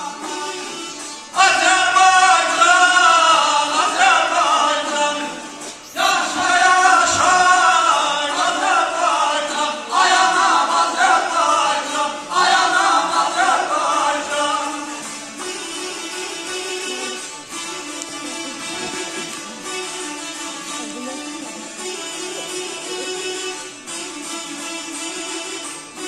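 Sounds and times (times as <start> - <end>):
man singing amplified: 0.0 - 15.0
plucked lutes: 0.0 - 26.0.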